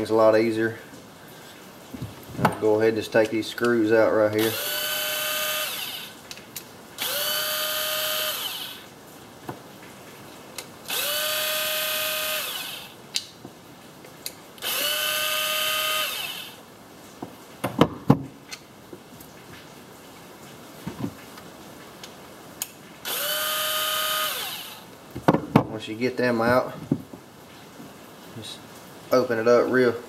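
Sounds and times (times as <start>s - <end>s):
cordless drill motor whine: 4.4s - 6.2s, 7.0s - 8.9s, 10.9s - 13.0s, 14.6s - 16.6s, 23.0s - 24.9s.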